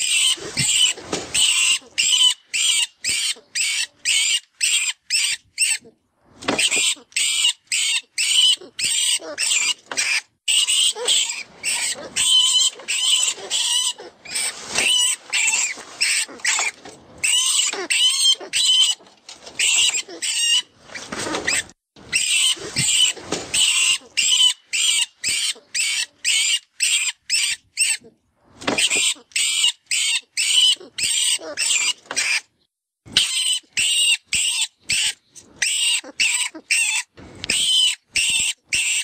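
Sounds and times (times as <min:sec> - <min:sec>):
recorded rat squeals: 0:00.0 - 0:05.9, 0:06.6 - 0:19.0, 0:19.6 - 0:28.1, 0:28.8 - 0:32.5, 0:33.1 - 0:39.0.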